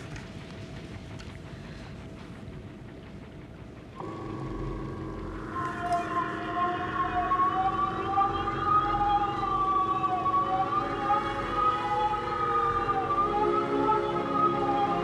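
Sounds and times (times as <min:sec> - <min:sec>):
steady electronic hum: 0:00.0 - 0:15.0
wavering rising and falling tones: 0:04.0 - 0:15.0.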